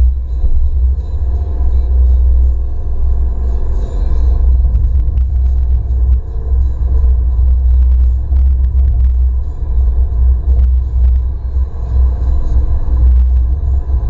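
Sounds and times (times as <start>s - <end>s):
car engine and road rumble: 0.0s - 14.0s.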